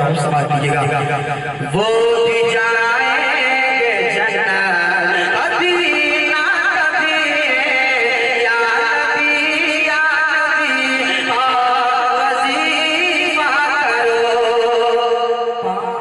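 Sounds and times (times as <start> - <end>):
man singing into a microphone: 0.0 - 16.0.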